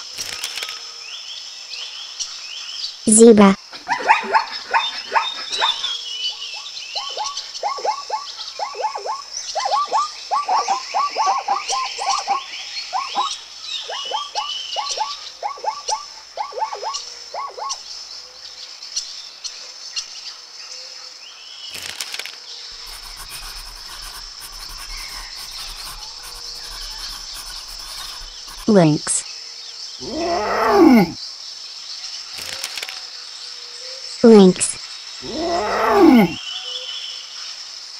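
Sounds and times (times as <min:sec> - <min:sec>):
birds chirping: 0:03.1 - 0:18.0, 0:22.8 - 0:29.2, 0:30.0 - 0:31.2, 0:34.2 - 0:36.4
zebra barking yelps: 0:03.8 - 0:05.9, 0:07.0 - 0:17.8, 0:30.0 - 0:31.2, 0:35.2 - 0:36.4
insects chirring: 0:21.7 - 0:31.5, 0:34.5 - 0:36.5.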